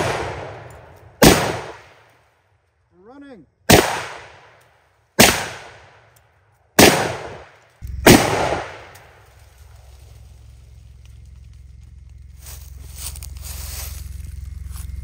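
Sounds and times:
rifle shots with echo: 0:00.0 - 0:02.0, 0:03.7 - 0:04.6, 0:05.2 - 0:06.1, 0:06.8 - 0:09.2.

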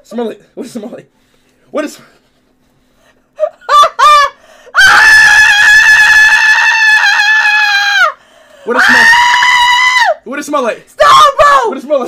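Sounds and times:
young man screaming: 0:03.7 - 0:10.3, 0:11.0 - 0:12.0.

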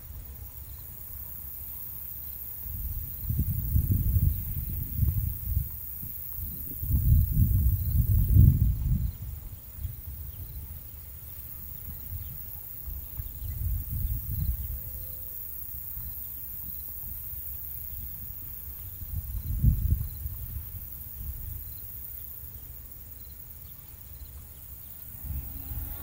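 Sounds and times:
insects chirping: 0:00.0 - 0:26.0
low rumbles: 0:24.9 - 0:26.0.

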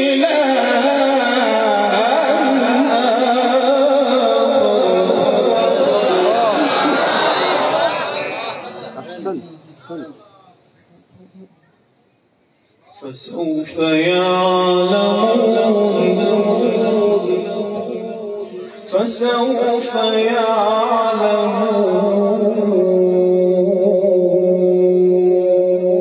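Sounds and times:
man chanting melodically: 0:00.0 - 0:06.9, 0:13.0 - 0:26.0.

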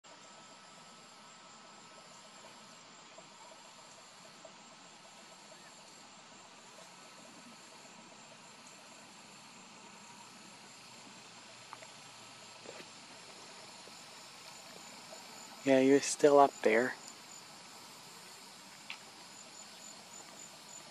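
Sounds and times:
background hiss: 0:00.0 - 0:20.9
insects chirring: 0:00.1 - 0:20.9
faint clicks: 0:18.8 - 0:19.1.

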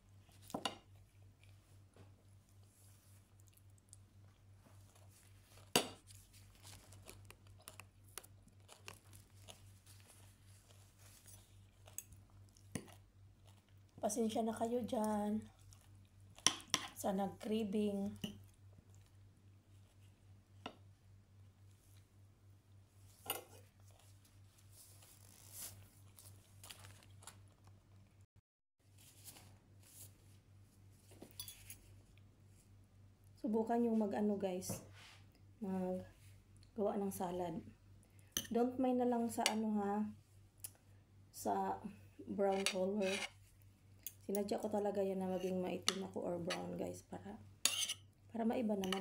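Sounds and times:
low electrical hum: 0:00.0 - 0:49.0
close chewing with crunches: 0:02.6 - 0:14.0, 0:15.4 - 0:16.7, 0:25.8 - 0:28.2
utensil scraping a plate: 0:42.5 - 0:43.4, 0:47.6 - 0:48.0.

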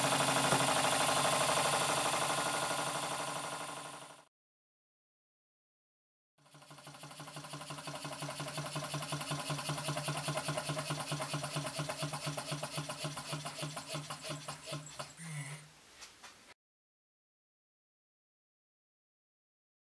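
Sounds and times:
engine rhythmic clatter: 0:00.0 - 0:04.3, 0:06.4 - 0:15.2.

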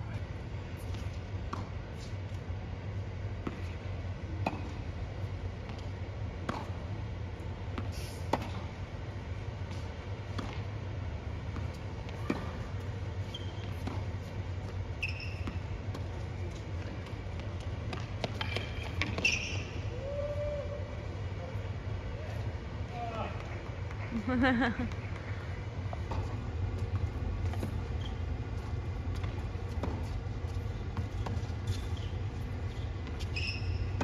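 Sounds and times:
tennis ball bouncing: 0:04.4 - 0:04.8, 0:06.4 - 0:06.8, 0:11.5 - 0:12.8, 0:13.6 - 0:14.8, 0:15.4 - 0:19.4, 0:28.6 - 0:32.0.

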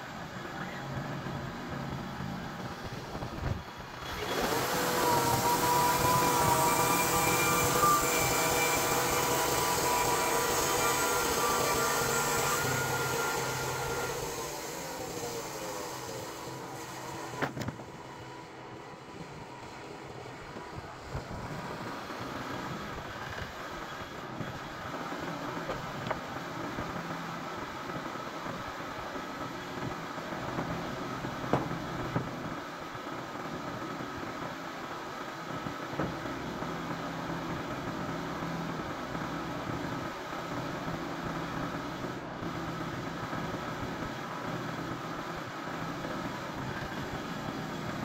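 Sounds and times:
sawmill engine running: 0:00.1 - 0:48.0.

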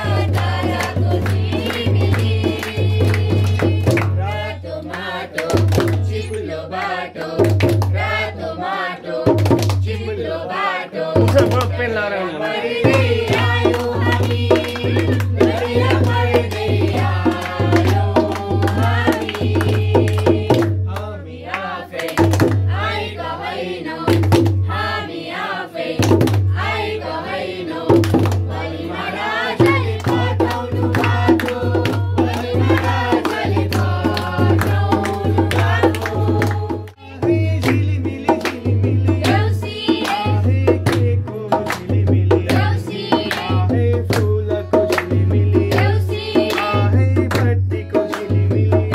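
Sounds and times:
hand drum beat: 0:00.0 - 0:06.4, 0:07.2 - 0:08.2, 0:09.3 - 0:10.0, 0:11.1 - 0:11.8, 0:12.8 - 0:21.0, 0:22.0 - 0:23.0, 0:24.0 - 0:24.9, 0:26.0 - 0:26.8, 0:27.9 - 0:48.9
women singing: 0:00.0 - 0:48.9
hand clapping: 0:00.2 - 0:04.2, 0:04.9 - 0:06.2, 0:06.8 - 0:08.1, 0:09.4 - 0:09.9, 0:11.2 - 0:11.8, 0:12.9 - 0:22.6, 0:28.0 - 0:28.5, 0:29.6 - 0:37.0, 0:37.6 - 0:48.4
man singing lead: 0:09.9 - 0:16.1, 0:33.8 - 0:48.9.

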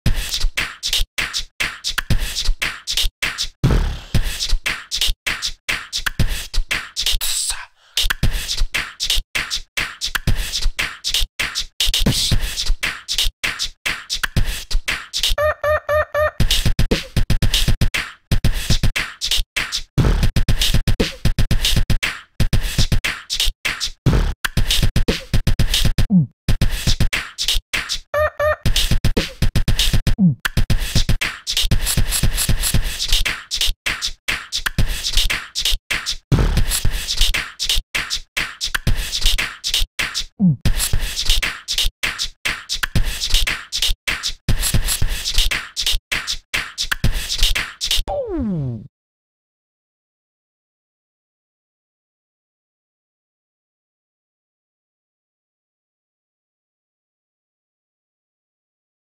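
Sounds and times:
beatbox-style percussive beat: 0:00.1 - 0:48.5
short repeated pitched notes: 0:15.4 - 0:16.4, 0:28.2 - 0:28.7.

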